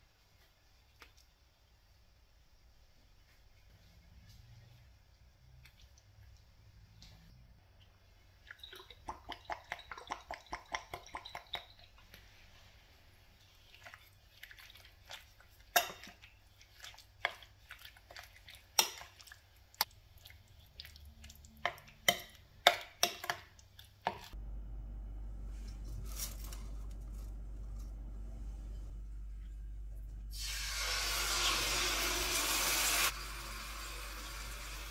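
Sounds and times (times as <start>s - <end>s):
spoon stirring marinade: 8.4s - 12.5s, 13.3s - 24.4s
steady low hum: 24.4s - 30.4s.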